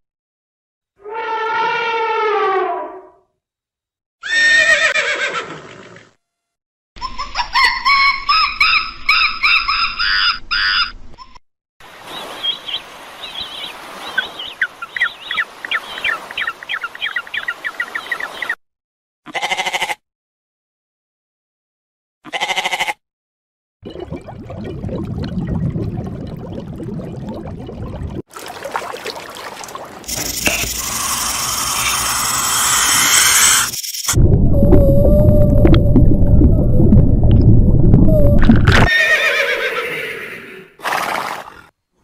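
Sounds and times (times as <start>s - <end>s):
goat bleats: 19.3s - 20.0s, 22.2s - 23.0s.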